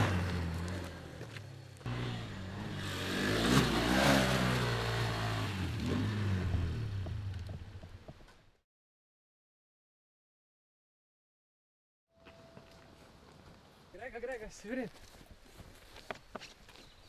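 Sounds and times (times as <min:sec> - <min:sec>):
dirt-bike engine revving: 0:00.0 - 0:07.4.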